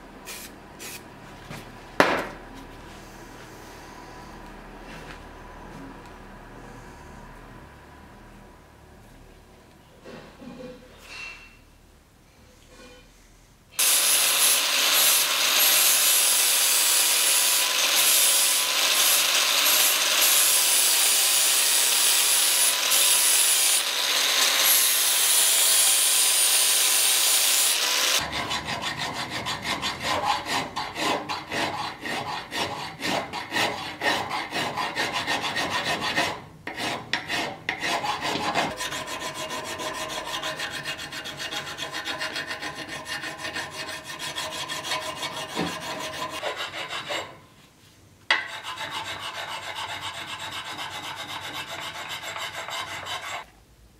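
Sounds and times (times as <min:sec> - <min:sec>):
angle grinder grinding steel: 0:13.8 - 0:28.7
hand file scraping metal: 0:13.8 - 0:47.4, 0:48.3 - 0:53.5.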